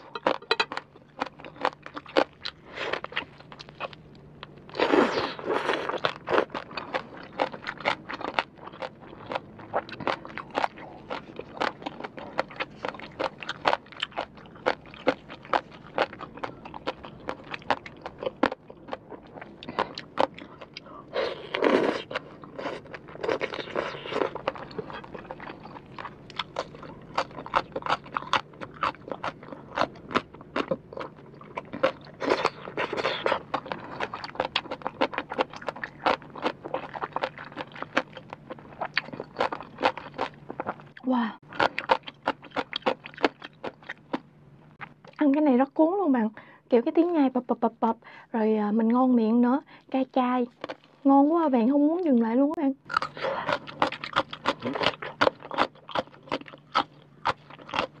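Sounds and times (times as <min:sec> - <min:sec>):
crunchy chewing of crisp vegetable: 0:00.0 - 0:45.2, 0:49.8 - 0:51.1, 0:52.8 - 0:58.0.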